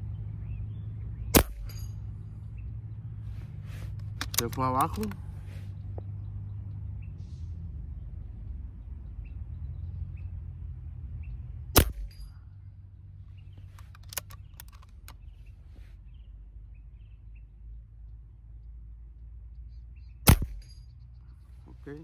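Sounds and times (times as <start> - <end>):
air rifle shots: 1.3 - 2.0, 11.7 - 12.3, 20.2 - 20.7.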